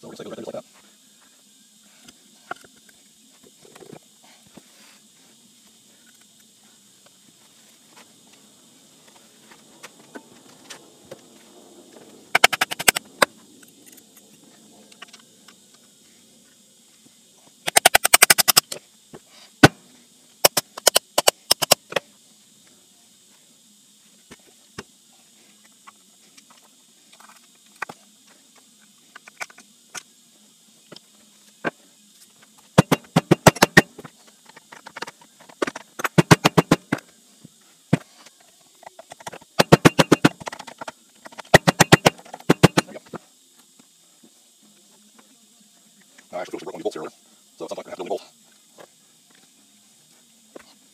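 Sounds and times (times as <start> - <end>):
hand ratchet clicking: 17.7 - 18.7, 39.6 - 40.6, 41.4 - 42.9.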